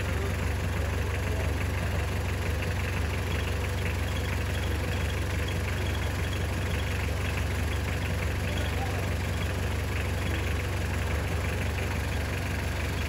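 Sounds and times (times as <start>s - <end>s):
engine idling: 0.0s - 13.0s.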